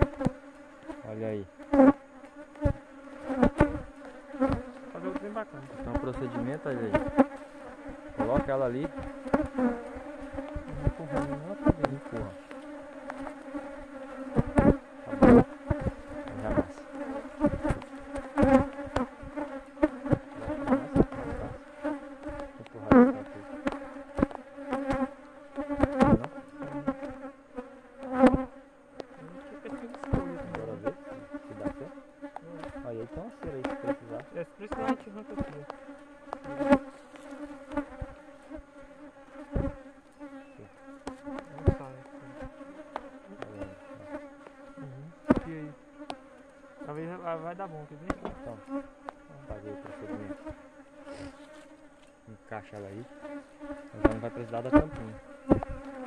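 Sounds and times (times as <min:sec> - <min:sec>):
bees buzzing: 0:00.0 - 0:56.0
sharp taps and knocks: 0:17.4 - 0:19.4, 0:33.4 - 0:38.2, 0:41.0 - 0:43.6, 0:45.3 - 0:46.2, 0:48.1 - 0:50.6, 0:54.8 - 0:56.0.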